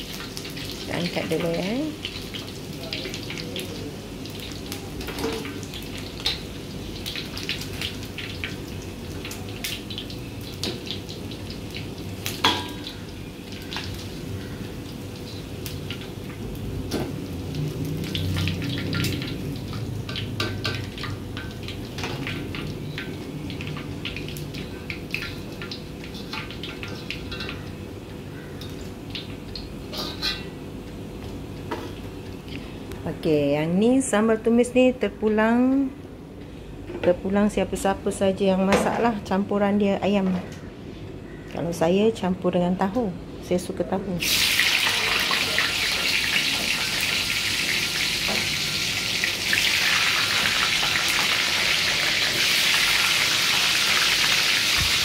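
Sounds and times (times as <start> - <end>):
oil crackling and popping: 0.0 - 30.5
metal utensils scraping wok: 29.9 - 30.6.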